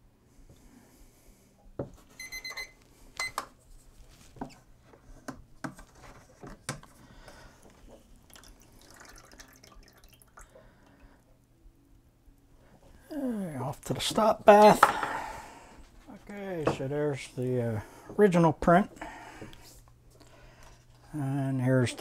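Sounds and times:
liquid sloshing and dripping: 6.7s - 11.3s.

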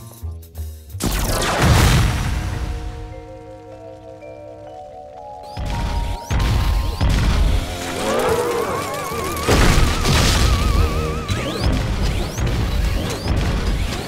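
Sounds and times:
dramatic music: 0.9s - 14.0s
heavy booming thuds: 5.6s - 7.8s, 9.5s - 14.0s.

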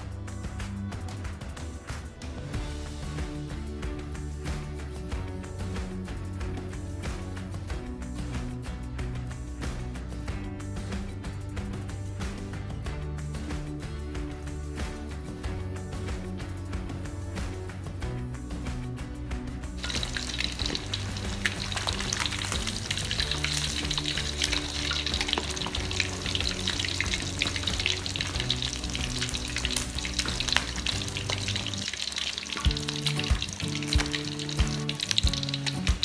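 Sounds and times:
background music: 0.0s - 36.0s
chicken deep-frying in oil: 19.8s - 36.0s
metal utensil stirring: 19.8s - 36.0s.

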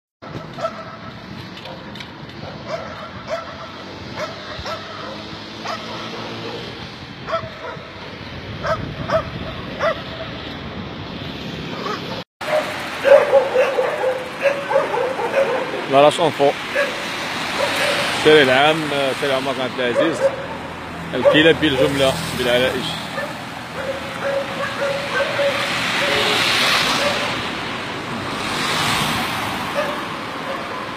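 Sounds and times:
dogs barking: 0.2s - 8.0s, 8.6s - 10.4s, 11.7s - 18.9s, 19.5s - 27.7s, 29.6s - 30.9s
wind and road noise: 0.2s - 30.9s.

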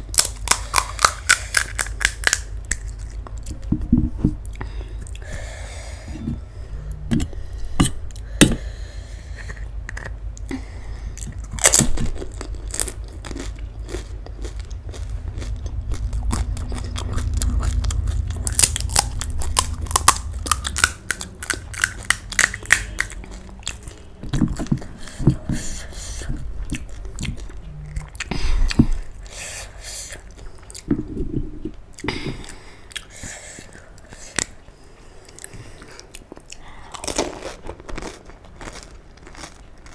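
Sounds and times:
crisp shells cracking and crunching: 0.0s - 3.4s, 11.3s - 23.9s, 36.4s - 39.9s.

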